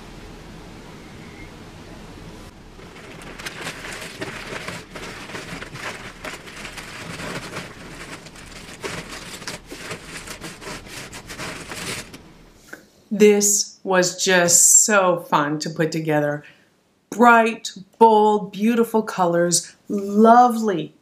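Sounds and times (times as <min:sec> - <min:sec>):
puzzle pieces rattling: 0:02.8 - 0:12.2.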